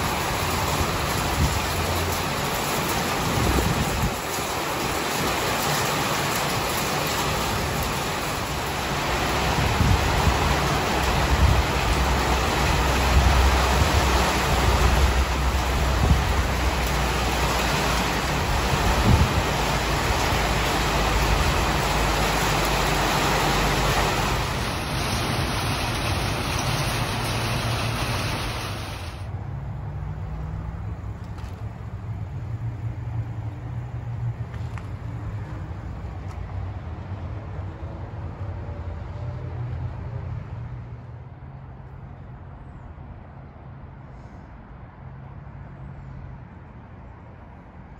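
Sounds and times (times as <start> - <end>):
heavy rain and hail: 0.0 - 29.3.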